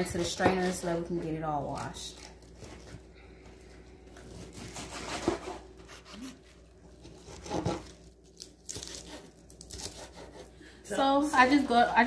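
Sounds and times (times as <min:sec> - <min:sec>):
lettuce leaves crinkling and tearing: 0:01.6 - 0:03.0, 0:06.1 - 0:10.0.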